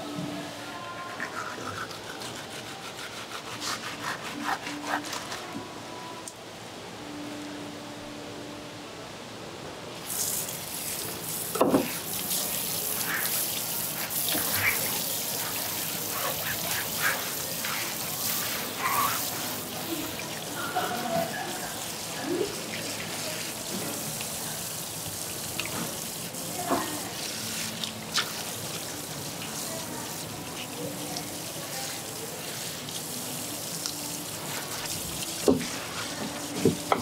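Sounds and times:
water hissing from hose nozzle: 0:10.0 - 0:37.0.

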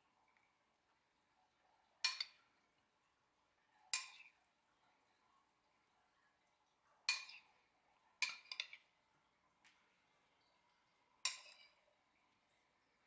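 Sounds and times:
metal spoon clinking on ceramic: 0:02.0 - 0:02.4, 0:07.1 - 0:07.5, 0:11.2 - 0:11.8.

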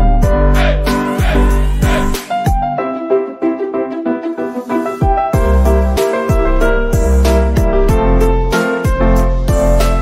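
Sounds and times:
music with deep bass beat: 0:00.0 - 0:02.8, 0:05.0 - 0:10.0.

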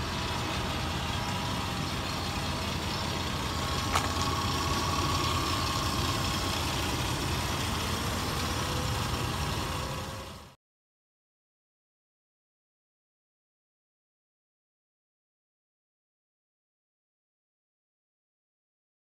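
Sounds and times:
truck engine idling: 0:00.0 - 0:10.6.

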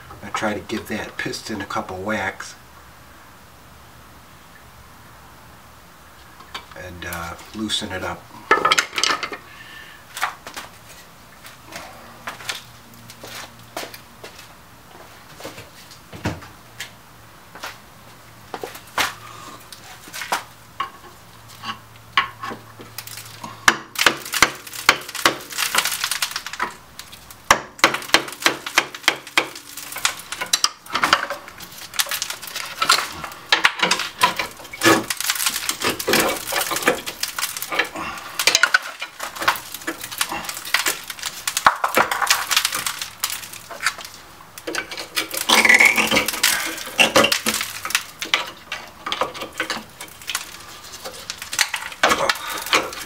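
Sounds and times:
metal tools clanking and scraping: 0:08.5 - 0:09.5, 0:44.6 - 0:53.0.

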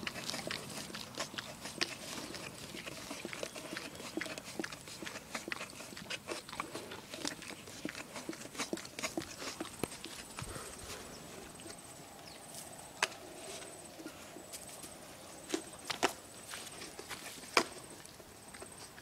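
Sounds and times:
dog licking and slurping: 0:00.0 - 0:10.6.

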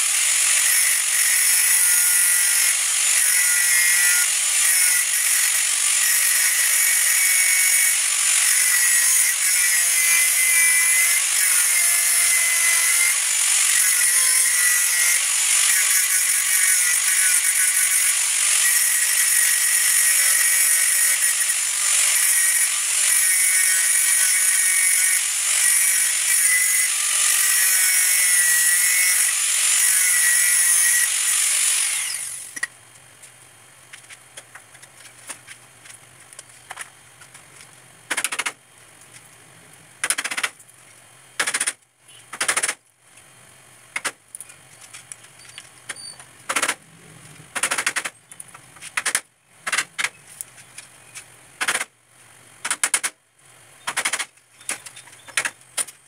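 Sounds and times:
angle grinder grinding steel: 0:00.0 - 0:32.7.

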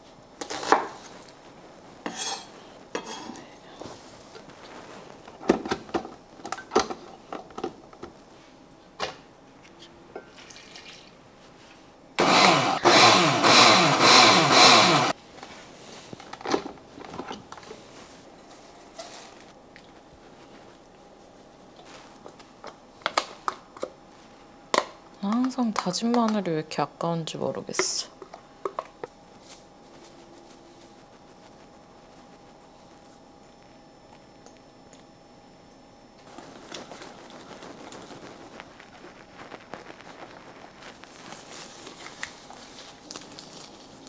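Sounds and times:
blender grinding onion: 0:12.2 - 0:15.2.

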